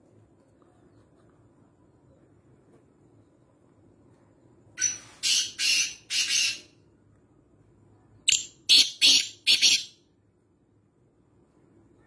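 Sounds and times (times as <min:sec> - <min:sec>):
francolin calling: 0:08.3 - 0:10.0.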